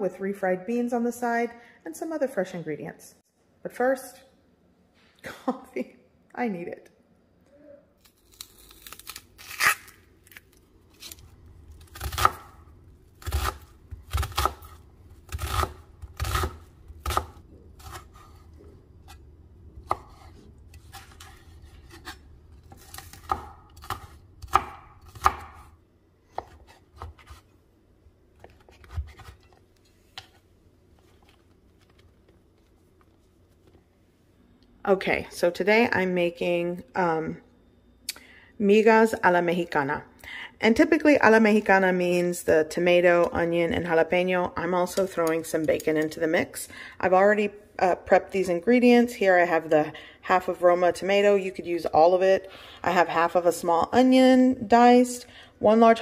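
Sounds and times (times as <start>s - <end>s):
knife chopping on wooden board: 19.8s - 25.6s.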